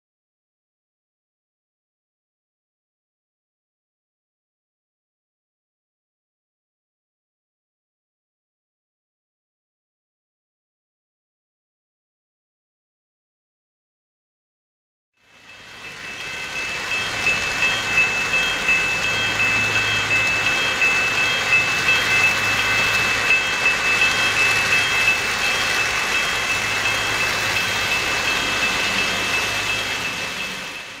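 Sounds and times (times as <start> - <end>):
model train wheels rolling on track: 15.2 - 31.0
high pulsing ringing tone: 15.3 - 31.0.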